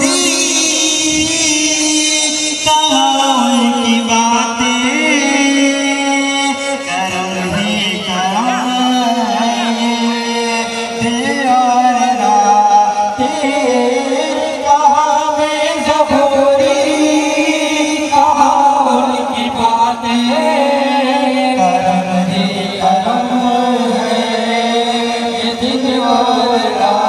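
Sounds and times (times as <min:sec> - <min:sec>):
backing music: 0:00.0 - 0:27.0
person singing a devotional chant: 0:00.0 - 0:27.0.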